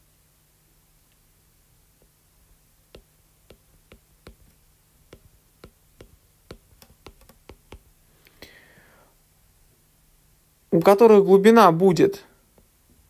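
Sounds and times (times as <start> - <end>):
faint steady hum: 0.0 - 13.0
stylus tapping a tablet screen: 2.9 - 8.0.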